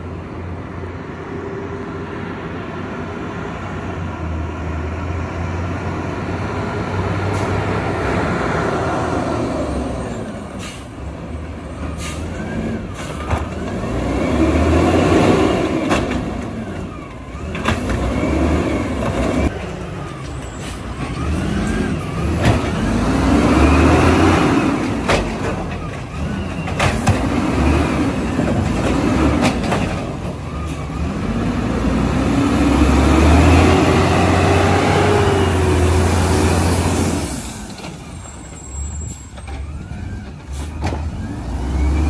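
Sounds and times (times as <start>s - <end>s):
garbage truck engine and hydraulics: 0.0s - 42.0s.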